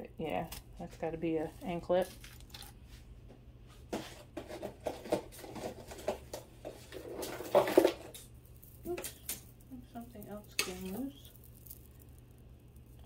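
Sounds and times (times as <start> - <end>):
jewelry clattering: 5.0 - 13.0
jewelry clicking and rattling: 7.3 - 13.0.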